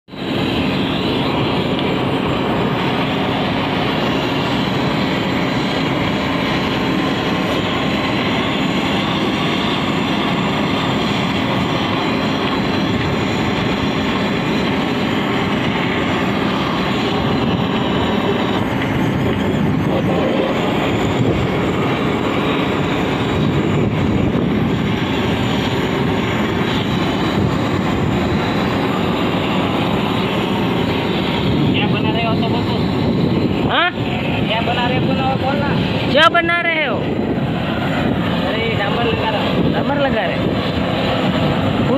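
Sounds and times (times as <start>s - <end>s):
blowtorch flame hissing: 0.1s - 41.9s.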